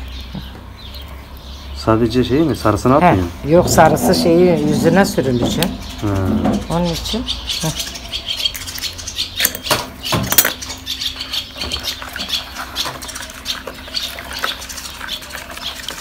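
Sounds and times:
utensil scraping a bowl: 3.4s - 6.8s, 11.6s - 16.0s
sharp knocks: 3.6s - 6.7s.

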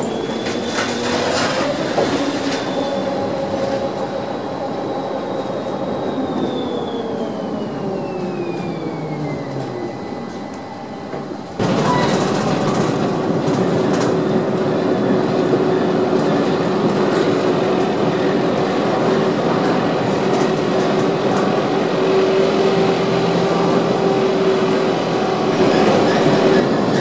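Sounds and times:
tram wheels rumbling on rails: 0.0s - 27.0s
rail clicks: 8.5s - 22.0s.

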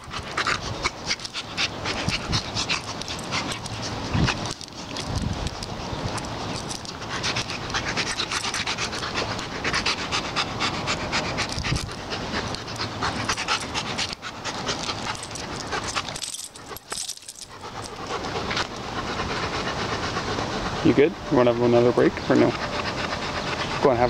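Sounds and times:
dog fur scraping on asphalt: 0.0s - 16.9s
dog panting: 0.0s - 24.0s.

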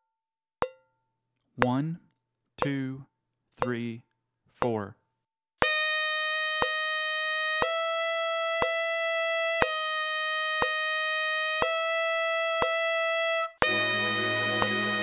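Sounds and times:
metronome clicking: 1.6s - 2.0s, 2.6s - 3.0s, 3.6s - 4.9s, 5.6s - 9.8s, 10.6s - 10.8s, 11.6s - 11.9s, 12.6s - 12.9s
tenor saxophone playing: 9.5s - 15.0s.

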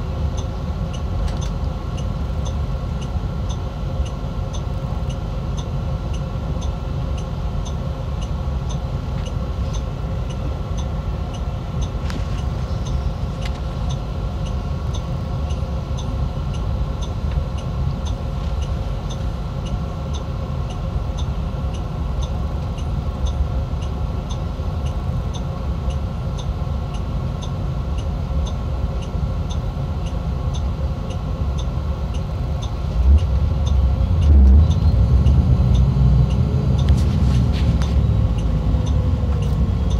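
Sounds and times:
bus diesel engine rumble: 0.0s - 39.9s
light ticking: 0.3s - 37.0s.

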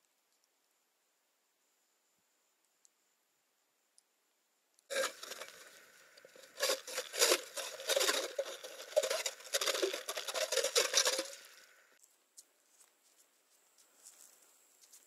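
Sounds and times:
ice auger scraping ice: 4.9s - 11.8s.

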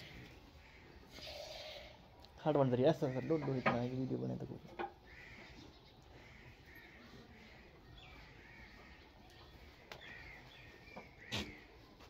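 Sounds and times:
faint bird calls: 4.8s - 12.0s.

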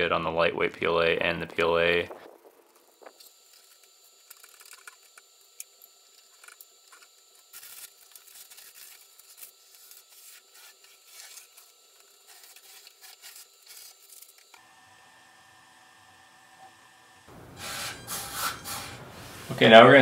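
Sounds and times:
masking tape peeling and rustling: 1.9s - 14.6s.

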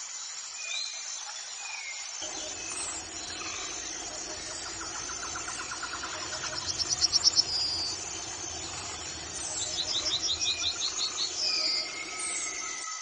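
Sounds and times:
fainter lower repeated bird notes: 2.2s - 13.0s
yellowhammer singing: 2.2s - 13.0s.

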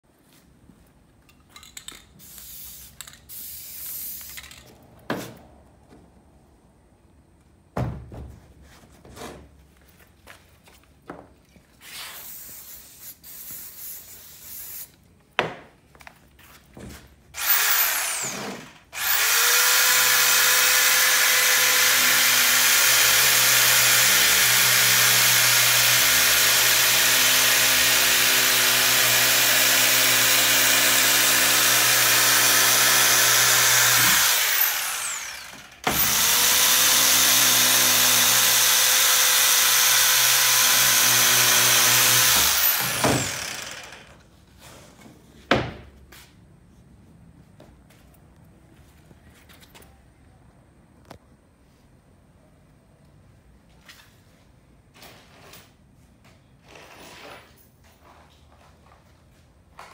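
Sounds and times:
power tool cutting foam: 17.4s - 44.2s.

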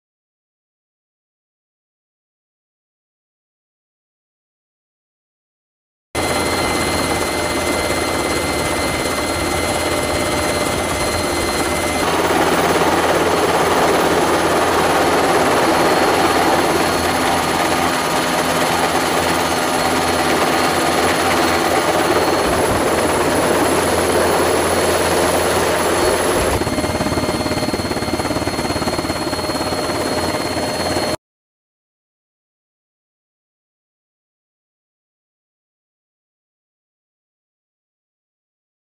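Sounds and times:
helicopter engine and rotor: 6.2s - 31.2s
high turbine whine: 6.2s - 31.2s.

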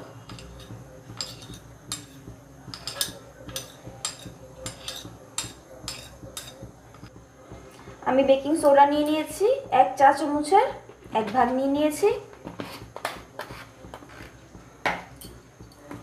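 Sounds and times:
metal spoon scraping a plate: 0.3s - 2.2s, 2.8s - 6.6s, 12.5s - 14.4s.

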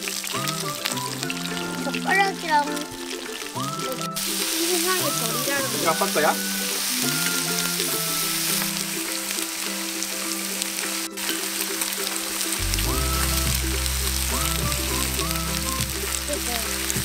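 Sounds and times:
background music: 0.0s - 17.0s
meat sizzling on a grill: 0.0s - 17.0s.

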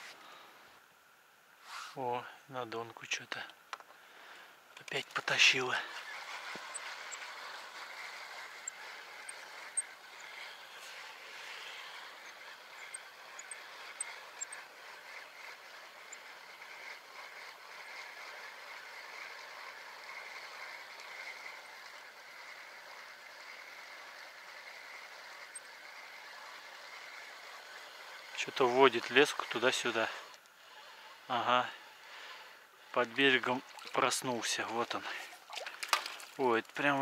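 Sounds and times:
faint outdoor background noise: 0.0s - 37.0s.

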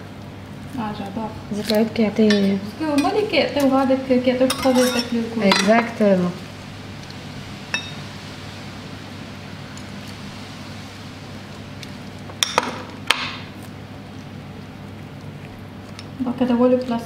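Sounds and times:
utensil scraping ceramic dish: 4.5s - 5.8s.

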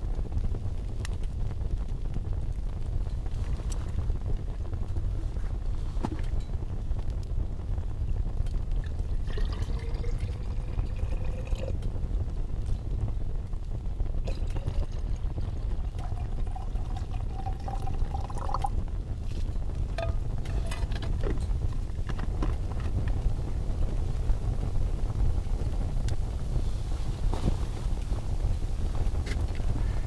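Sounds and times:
steady low rumble: 0.0s - 30.0s
liquid poured into a container: 9.2s - 11.8s, 14.2s - 18.7s.

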